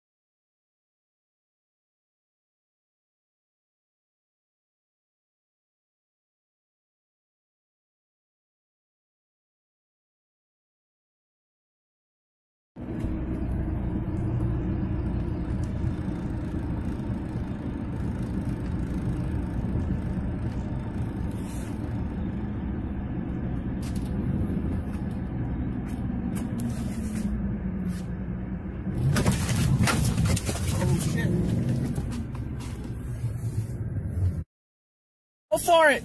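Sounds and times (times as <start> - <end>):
car cabin road and engine rumble: 12.8 - 34.5, 35.5 - 36.0.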